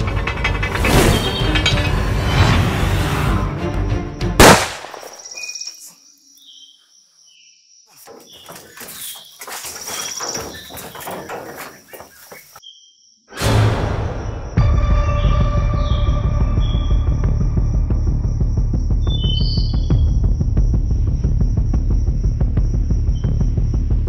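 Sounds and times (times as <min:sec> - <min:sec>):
birds chirping: 0:05.0 - 0:13.2, 0:14.2 - 0:17.6, 0:18.3 - 0:23.8
scuffs and thuds of people running: 0:07.9 - 0:12.6
steady insect drone: 0:12.8 - 0:24.0.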